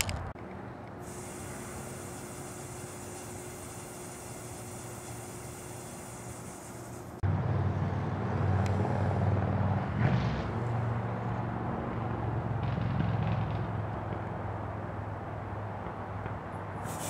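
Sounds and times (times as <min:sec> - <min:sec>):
motor humming: 0:01.0 - 0:07.2
short hiss: 0:01.0 - 0:07.2, 0:16.8 - 0:17.0.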